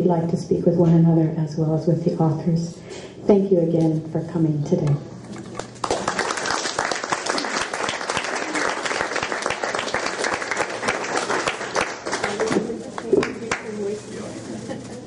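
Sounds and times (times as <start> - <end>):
audience applauding: 5.6 - 13.8.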